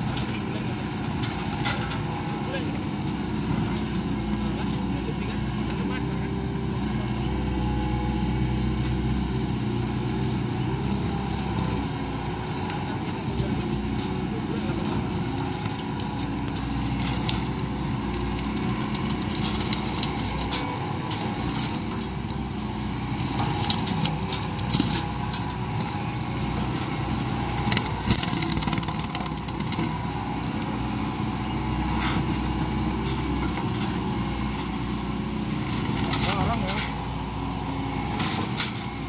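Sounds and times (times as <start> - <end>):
excavator diesel engine running: 0.0 - 39.0
shredder grinding wood debris: 8.4 - 39.0.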